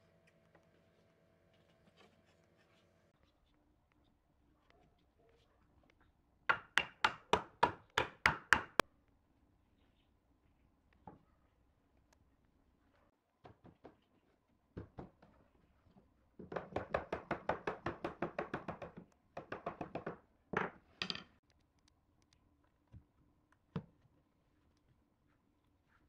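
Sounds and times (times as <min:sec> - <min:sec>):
wooden mallet knocking on wood: 0:06.5 - 0:08.8.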